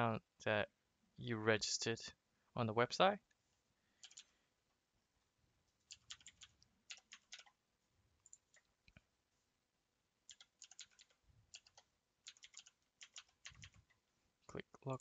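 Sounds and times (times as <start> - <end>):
faint keyboard typing: 4.0 - 4.4, 5.8 - 7.6, 8.2 - 9.1, 10.3 - 14.0.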